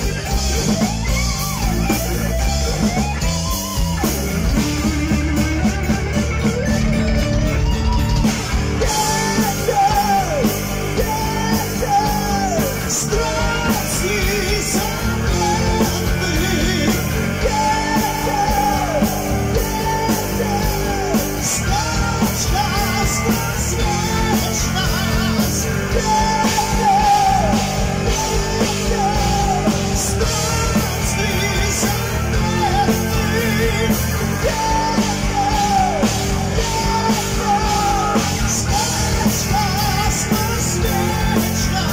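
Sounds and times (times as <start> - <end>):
heavy metal band playing live: 0.0 - 41.9
man singing long notes: 8.8 - 41.9.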